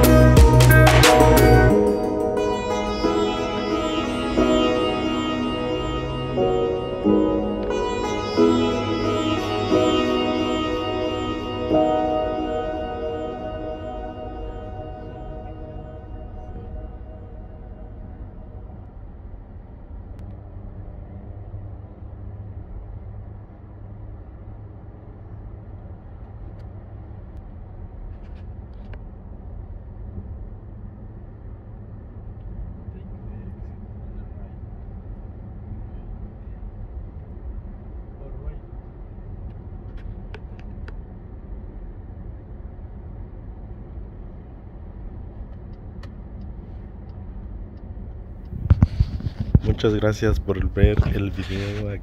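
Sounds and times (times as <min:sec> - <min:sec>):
person speaking: 0:49.6 - 0:52.0.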